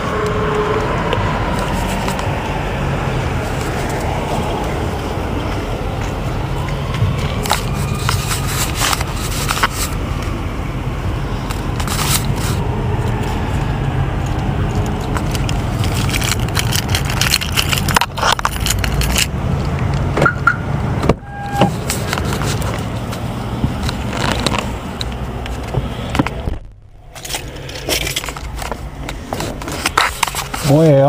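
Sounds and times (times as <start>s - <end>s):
vehicle rumble: 0.0s - 31.0s
short electronic tone: 21.2s - 21.7s.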